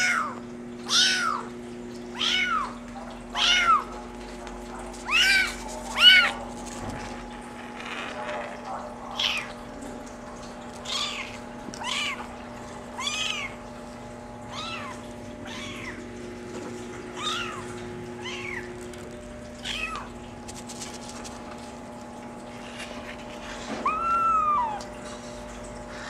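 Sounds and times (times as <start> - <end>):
faint steady hum: 0.0 - 26.0
kitten mewing: 3.4 - 3.9, 4.9 - 7.0, 13.0 - 13.6, 14.4 - 16.0, 19.6 - 20.2, 23.8 - 24.9.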